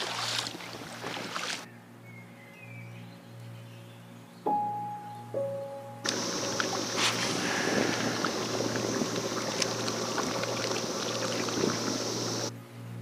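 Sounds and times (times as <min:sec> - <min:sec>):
jet ski engine whine: 0:06.1 - 0:12.5
water hiss: 0:06.1 - 0:12.5.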